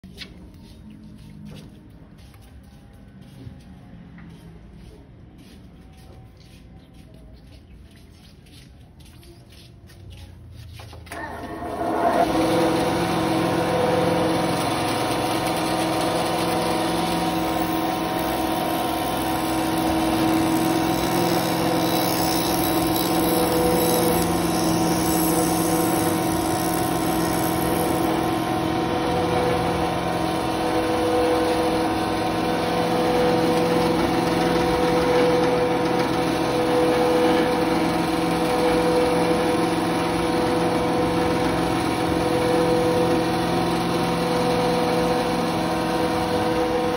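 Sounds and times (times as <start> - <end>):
motor hum: 11.0 - 46.9
bandsaw cutting: 11.1 - 46.9.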